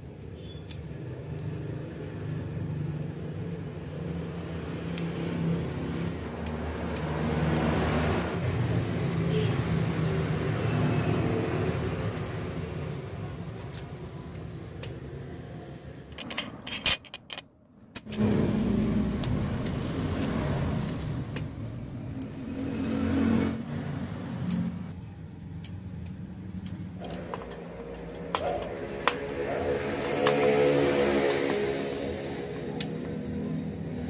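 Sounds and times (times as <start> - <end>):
plastic and metal parts clicking: 13.5 - 15.0
steady low rumble: 17.7 - 22.8.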